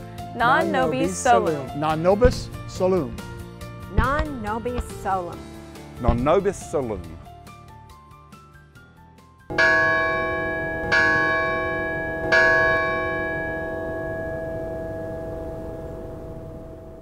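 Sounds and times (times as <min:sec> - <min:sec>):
deep bell ringing: 0:09.5 - 0:17.0.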